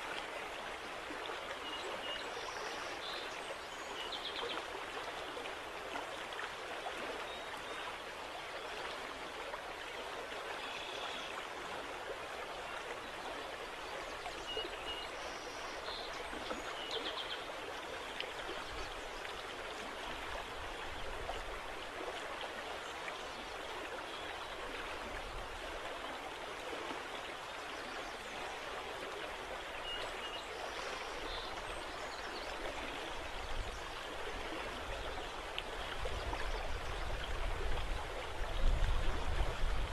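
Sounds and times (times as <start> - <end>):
rippling river water: 0.0 - 39.9
wind rumble on microphone: 35.8 - 39.9.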